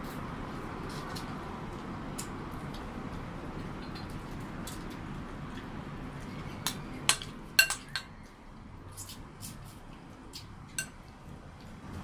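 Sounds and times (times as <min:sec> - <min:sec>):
dishes and utensils clinking: 0:06.6 - 0:08.2, 0:10.7 - 0:11.0.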